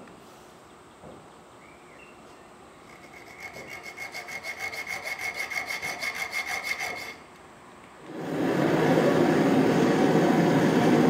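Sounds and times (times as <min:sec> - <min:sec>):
file scraping steel bar: 0:02.9 - 0:07.2.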